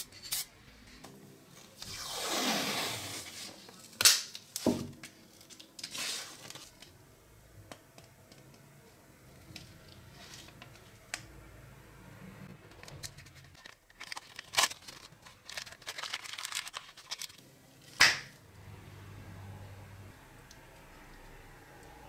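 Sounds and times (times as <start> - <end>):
paper crinkling and rustling: 12.8 - 17.4.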